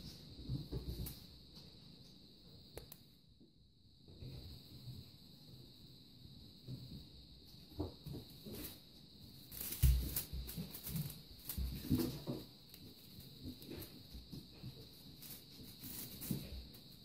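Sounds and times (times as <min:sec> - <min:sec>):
rustling feathers: 0:08.3 - 0:17.0.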